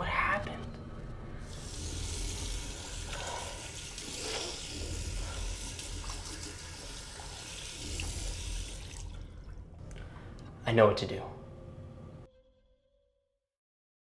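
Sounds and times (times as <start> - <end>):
tap water running into sink: 1.5 - 9.6.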